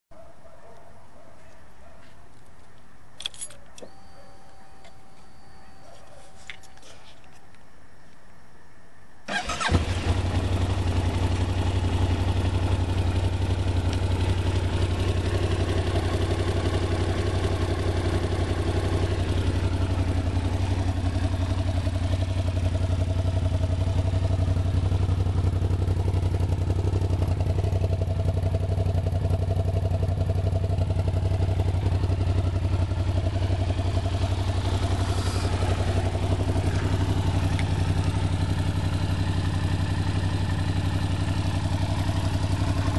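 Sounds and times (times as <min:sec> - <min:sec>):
motorcycle electric starter cranking: 0:09.3 - 0:10.0
motorcycle engine idling: 0:09.3 - 0:42.9.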